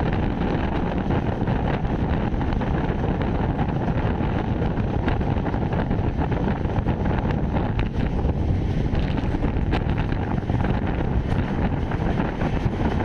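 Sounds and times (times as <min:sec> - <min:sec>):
moving train rumble: 0:00.0 - 0:13.0
wind on microphone: 0:00.0 - 0:13.0.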